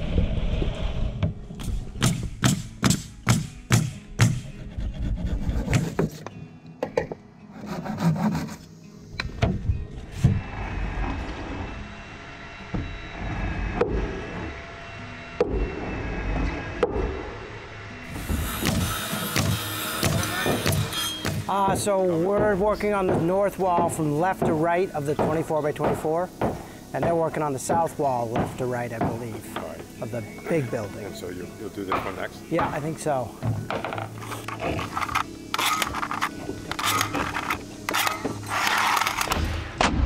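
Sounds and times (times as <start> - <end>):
hand tool striking wood: 1.6 - 4.5, 18.2 - 29.7.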